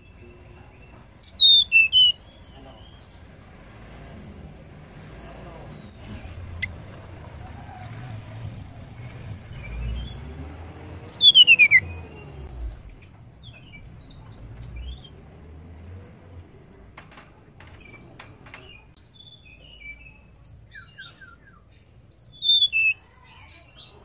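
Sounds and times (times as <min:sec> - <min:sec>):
bird chirps: 0:00.0 - 0:03.3, 0:08.5 - 0:15.2, 0:17.8 - 0:24.0.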